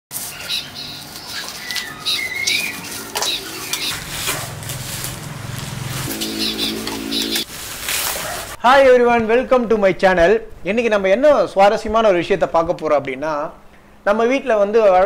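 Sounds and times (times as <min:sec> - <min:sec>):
birds chirping: 0:00.2 - 0:07.5
steady low tones: 0:03.0 - 0:07.5.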